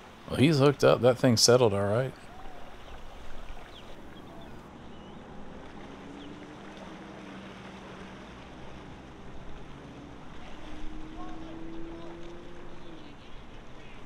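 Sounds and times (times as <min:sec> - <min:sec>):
distant engine humming: 0:00.0 - 0:04.6.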